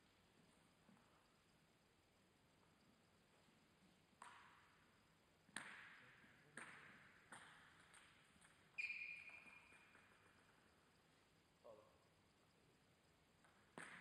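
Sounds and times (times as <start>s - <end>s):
table tennis ball bouncing: 4.2s - 4.7s, 5.5s - 6.0s, 6.6s - 10.2s, 13.4s - 14.0s.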